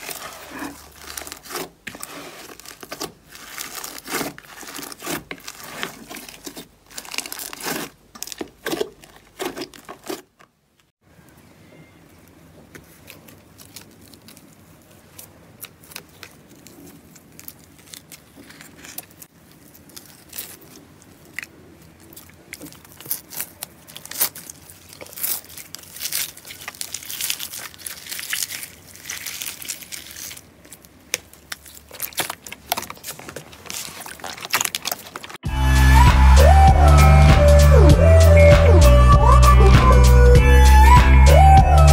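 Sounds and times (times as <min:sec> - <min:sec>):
slime crackling and popping: 0:00.0 - 0:09.9, 0:12.8 - 0:35.4
slime tearing away: 0:00.0 - 0:10.3, 0:13.0 - 0:35.4.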